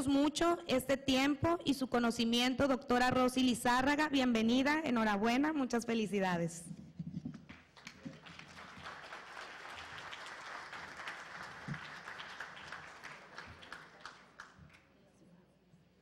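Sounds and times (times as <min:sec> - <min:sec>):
audience applauding: 0:07.7 - 0:14.8.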